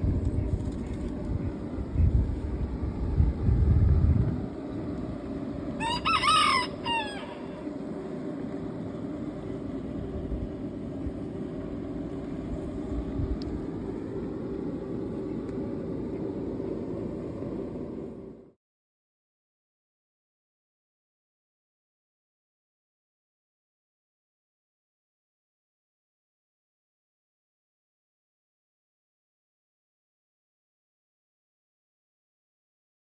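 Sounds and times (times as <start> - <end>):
heavy low rumble: 0.0 - 18.6
steady low hum: 0.0 - 18.6
rooster crowing: 5.8 - 7.7.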